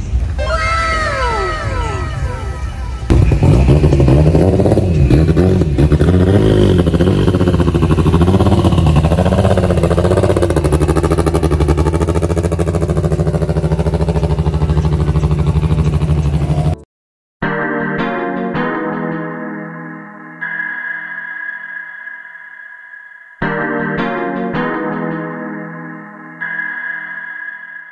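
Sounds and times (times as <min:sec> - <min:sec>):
car engine revving: 0:01.5 - 0:16.8.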